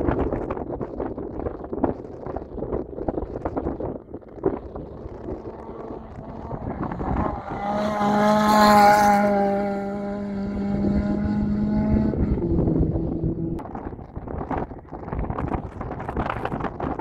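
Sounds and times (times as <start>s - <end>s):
rally car engine passing: 4.8s - 13.6s.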